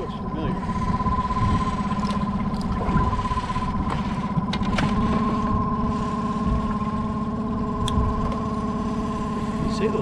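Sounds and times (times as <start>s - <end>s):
boat engine idling: 0.0s - 10.0s.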